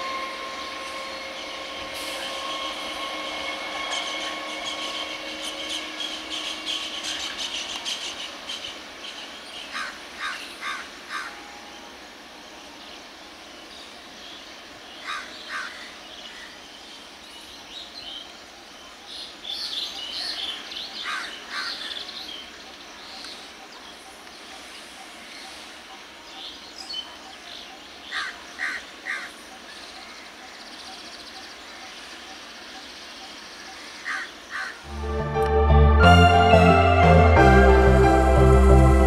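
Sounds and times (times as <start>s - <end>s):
crows cawing: 9.8s - 11.4s, 15.0s - 15.9s, 21.0s - 21.9s, 28.1s - 29.3s, 34.0s - 34.9s.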